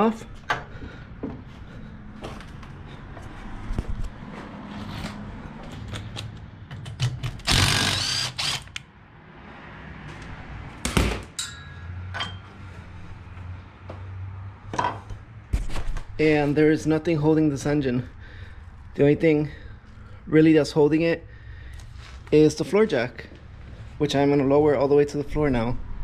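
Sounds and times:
cordless power tool burst: 7.4s - 8.8s
metal tools clinking: 11.4s - 12.4s.

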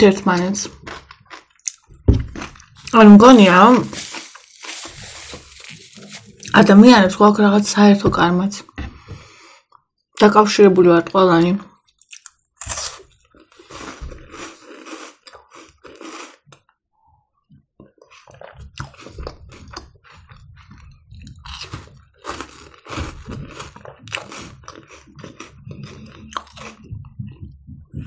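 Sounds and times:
crunching and chewing wafer: 0.6s - 6.7s, 12.0s - 16.7s, 17.8s - 27.0s.

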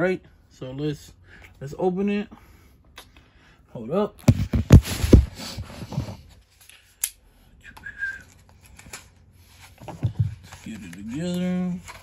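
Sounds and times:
phone handling thumps and rustling: 4.2s - 6.2s.

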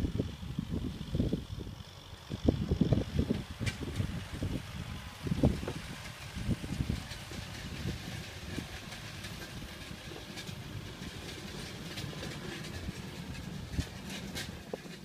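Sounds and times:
distant tractor engine rumbling: 0.0s - 15.0s
faint rattling: 3.0s - 15.0s.

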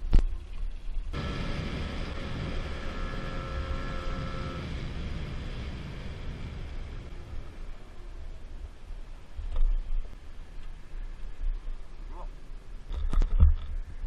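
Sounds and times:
wind rumble on camera: 0.0s - 14.0s
scooter engine running: 1.2s - 8.3s.

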